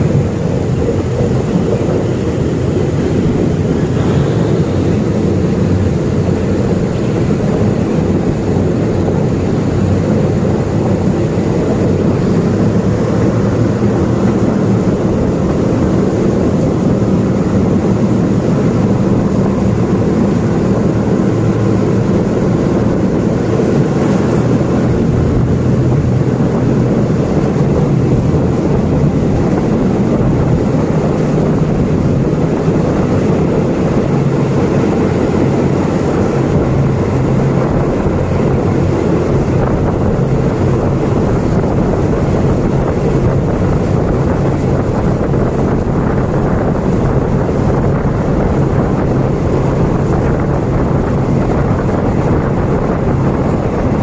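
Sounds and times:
diesel train engine drone: 0:00.0 - 0:54.0
rushing air: 0:00.0 - 0:54.0
train rumble: 0:00.0 - 0:54.0.

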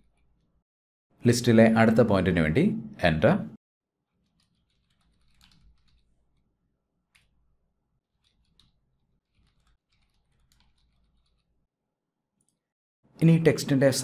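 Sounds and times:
faint keyboard typing: 0:04.2 - 0:06.5, 0:08.1 - 0:11.6.

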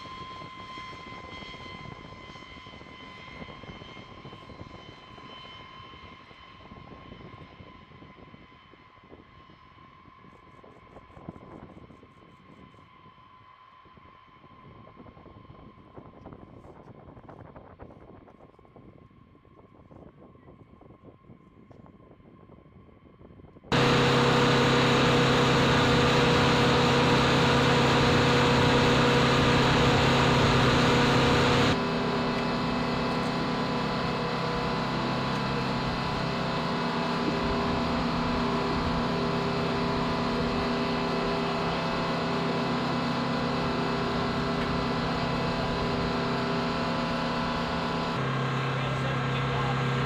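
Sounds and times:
aircraft turbine machinery: 0:00.0 - 0:06.8, 0:23.7 - 0:50.0
constant hum: 0:23.7 - 0:50.0.

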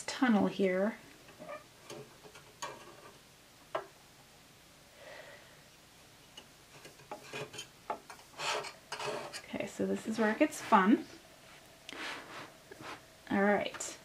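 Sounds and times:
soft rubbing of fabric: 0:08.4 - 0:13.1.

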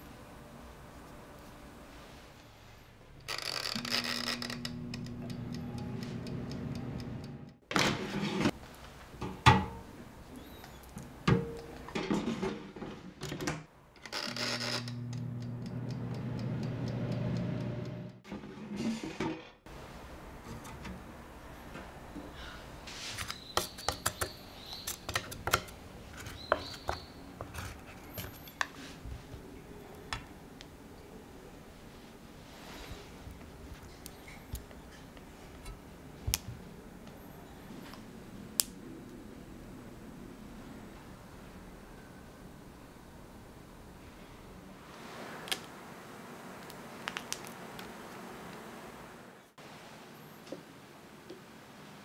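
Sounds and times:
fan humming: 0:03.0 - 0:07.7, 0:13.8 - 0:18.3
timer dial ticking: 0:04.5 - 0:07.6, 0:14.9 - 0:18.2
drawer sliding out with scrape: 0:07.7 - 0:08.6, 0:18.3 - 0:19.6.

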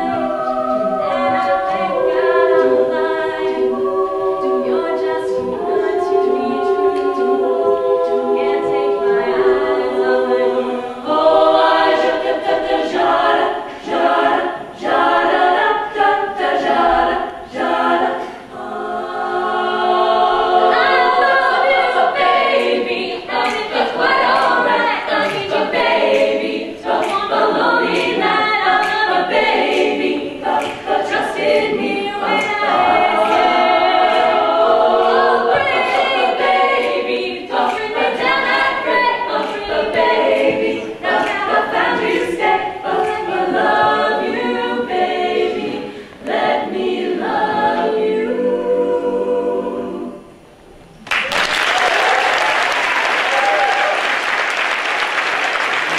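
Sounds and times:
women singing a cappella: 0:00.0 - 0:50.7
audience applause: 0:51.0 - 0:55.9.

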